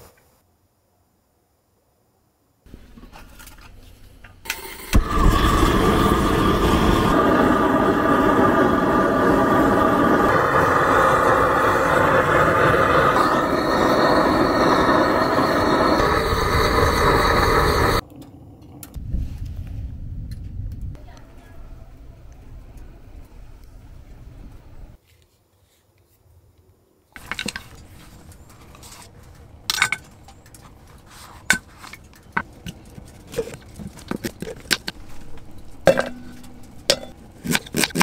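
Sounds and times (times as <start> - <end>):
gas torch flame roaring: 4.4 - 18.1.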